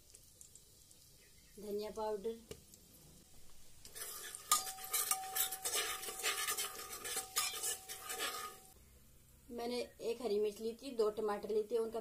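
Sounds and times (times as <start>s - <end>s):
light sizzle: 0.0s - 12.0s
metal ladle scraping a pot: 3.9s - 8.8s.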